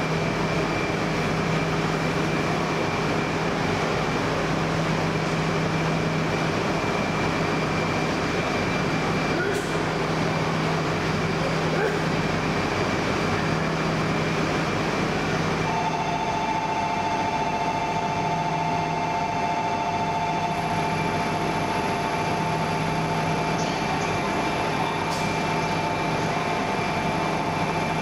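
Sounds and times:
train equipment humming: 0:00.0 - 0:28.0.

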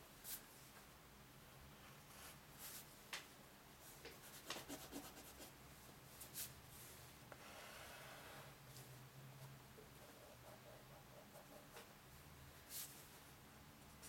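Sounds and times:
pencil scratching on paper: 0:04.2 - 0:05.5, 0:10.0 - 0:11.9.

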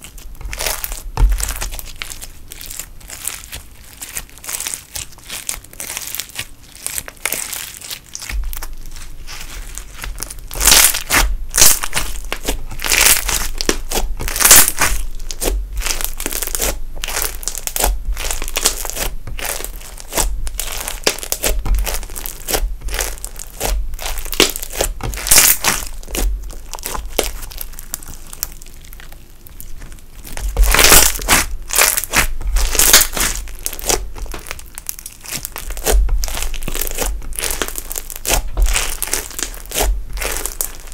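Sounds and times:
slime crackling and popping: 0:00.0 - 0:40.9.

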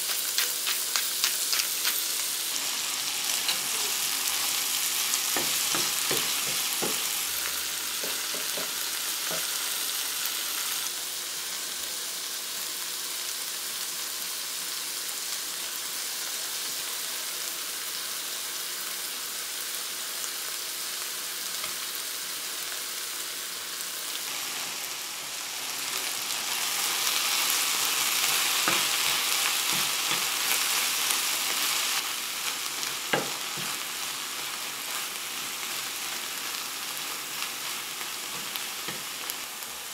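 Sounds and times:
vegetables sizzling in a frying pan: 0:00.0 - 0:39.9.

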